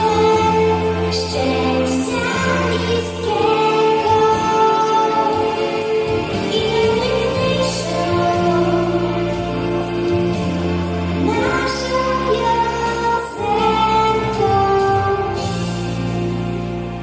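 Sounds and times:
song with sung melody and beat: 0.0 - 17.0.

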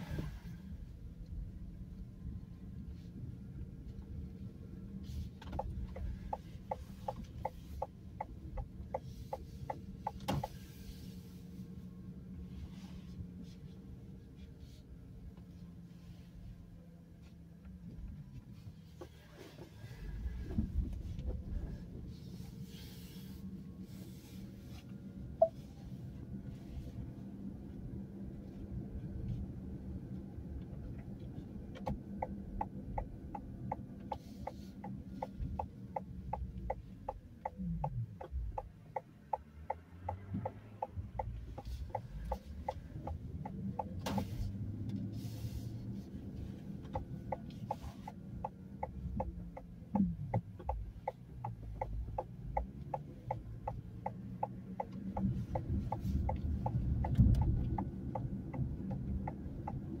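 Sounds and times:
car engine and road rumble: 0.0 - 60.0
light regular ticking: 31.7 - 45.1, 46.2 - 60.0.

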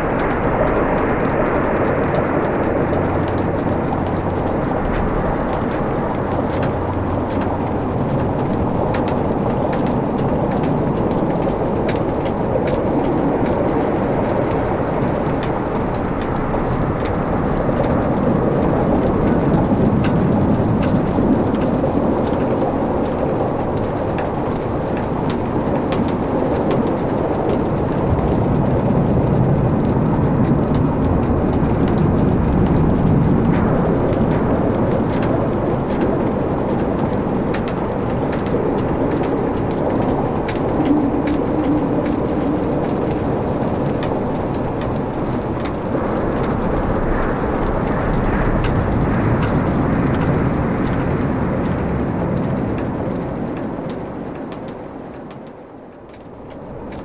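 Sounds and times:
crackles and pops of burning logs: 0.0 - 57.0
low rumble of flames: 0.0 - 57.0.

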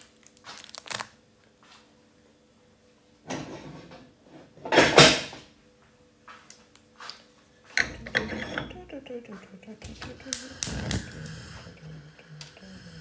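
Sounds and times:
cookware knocking and scraping: 7.7 - 9.0.

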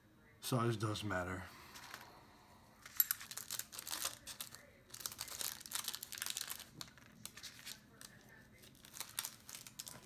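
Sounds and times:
paper mailer crinkling: 3.2 - 10.0.

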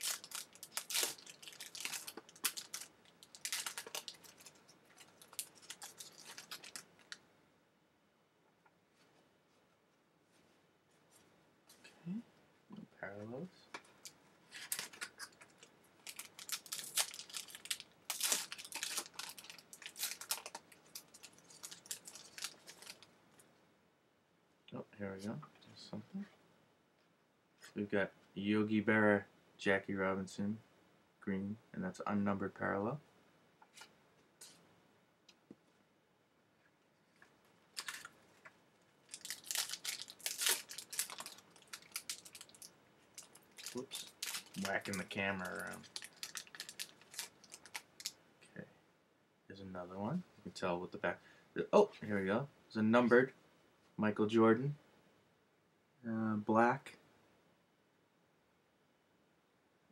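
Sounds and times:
wrapper crinkling and tearing: 0.0 - 7.2, 14.0 - 23.1, 37.7 - 48.2.

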